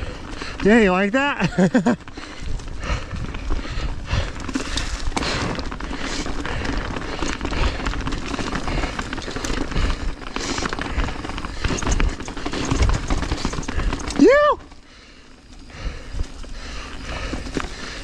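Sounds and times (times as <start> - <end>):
bike rattling over bumps: 0.0 - 18.0
bike tyres rolling over dirt: 0.0 - 18.0
wind buffeting microphone: 2.4 - 4.5.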